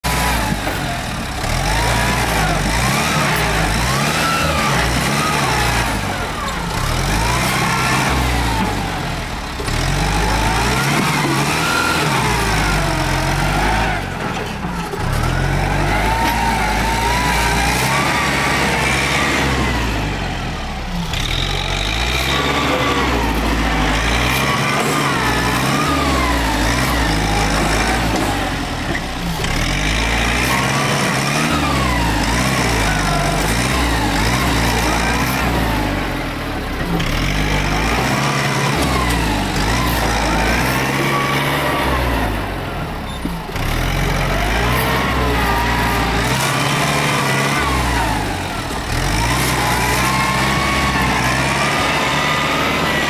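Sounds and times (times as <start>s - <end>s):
tractor diesel engine under load: 0.0s - 53.0s.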